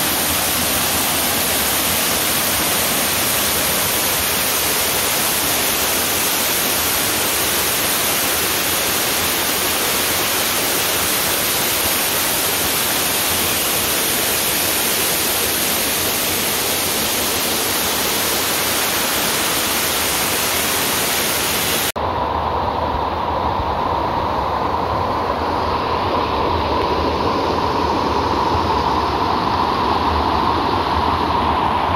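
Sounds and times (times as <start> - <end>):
waterfall rushing: 0.0 - 22.0
dull rush of water: 0.0 - 31.9.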